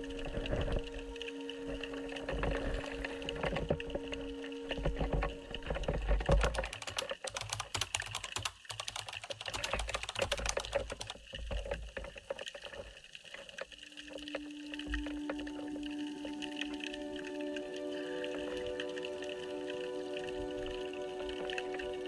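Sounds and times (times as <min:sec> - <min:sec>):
soft music: 0:00.0 - 0:11.1, 0:13.6 - 0:22.0
rapid keyboard typing: 0:06.3 - 0:11.4.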